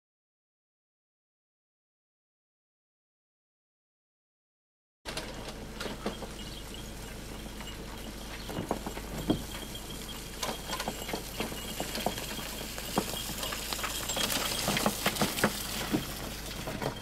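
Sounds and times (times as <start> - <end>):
cart knocking: 5.1 - 17.0
hoof clops: 5.2 - 17.0.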